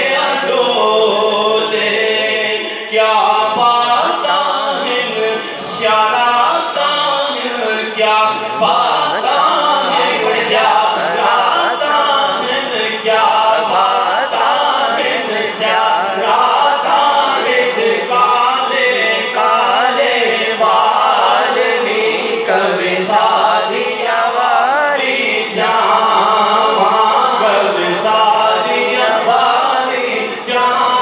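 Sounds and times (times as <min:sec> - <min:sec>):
man singing into microphone: 0:00.0 - 0:31.0.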